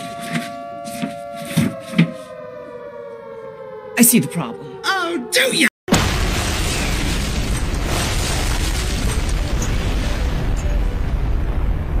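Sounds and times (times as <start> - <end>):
explosion rumble: 5.9 - 12.0.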